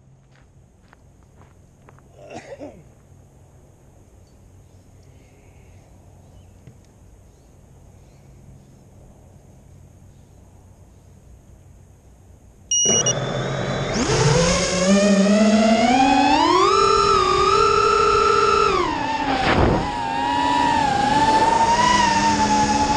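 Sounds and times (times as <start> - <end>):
brief beep: 12.7 - 13.2
drone motors whining: 12.7 - 22.9.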